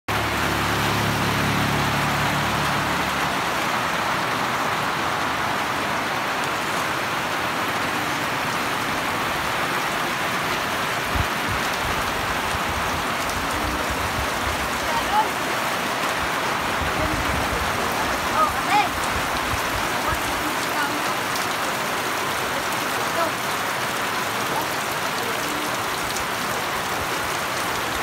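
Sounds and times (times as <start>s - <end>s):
heavy rain pouring: 0.1s - 28.0s.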